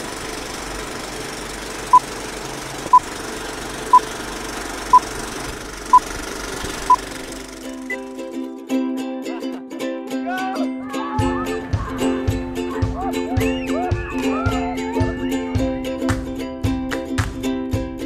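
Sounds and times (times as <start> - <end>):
film projector rattling: 0.0 - 8.0.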